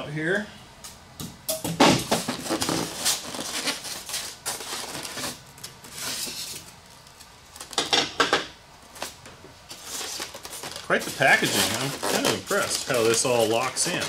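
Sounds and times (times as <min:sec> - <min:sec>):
foam pieces squeaking: 0:02.1 - 0:06.4, 0:09.7 - 0:14.0.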